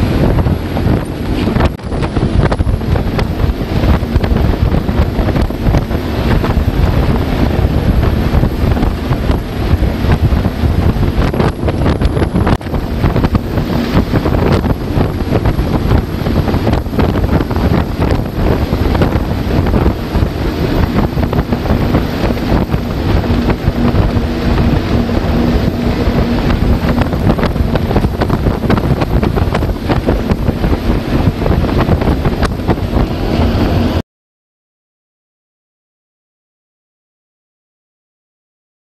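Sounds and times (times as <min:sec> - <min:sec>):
water rushing past hull: 0:00.0 - 0:34.0
wind buffeting microphone: 0:00.0 - 0:34.0.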